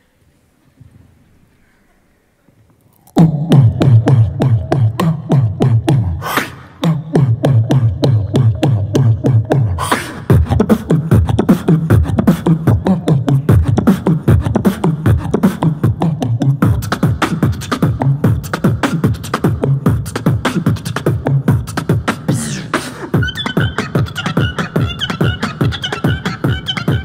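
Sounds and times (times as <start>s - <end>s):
beatboxing into microphone: 2.7s - 27.0s
low vocal bass line: 3.1s - 18.4s.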